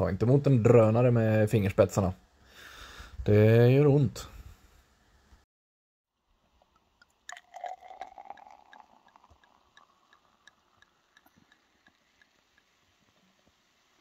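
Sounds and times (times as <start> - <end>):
drink pouring into glass: 6.3 - 13.5
bubbles popping: 7.3 - 11.6.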